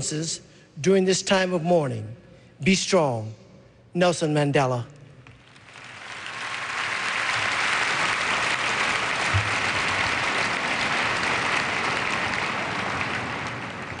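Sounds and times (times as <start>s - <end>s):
large audience applauding: 5.4s - 14.0s.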